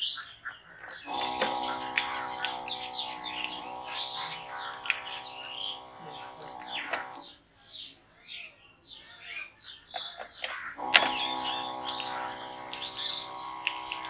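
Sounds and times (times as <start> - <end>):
motor humming whine: 1.1 - 7.3, 10.8 - 14.0
water splashing: 1.1 - 7.4, 10.8 - 14.0.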